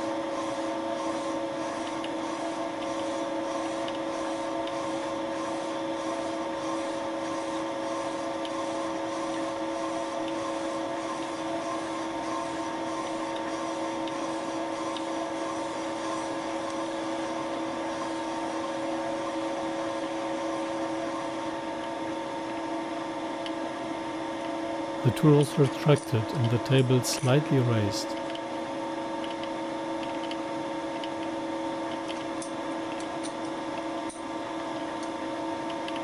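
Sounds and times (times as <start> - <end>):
milling machine humming: 0.0 - 36.0.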